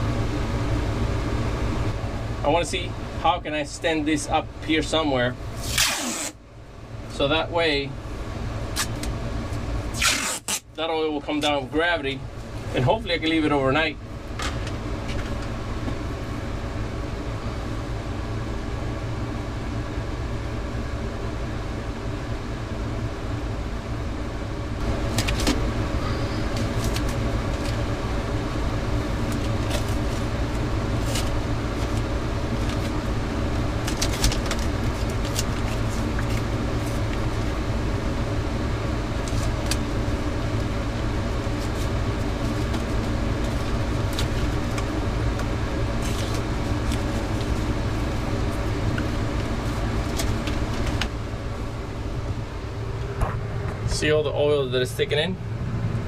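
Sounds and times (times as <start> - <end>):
low machine hum: 0.0 - 56.0
masking tape pulled off roll: 5.6 - 6.4, 9.9 - 10.6.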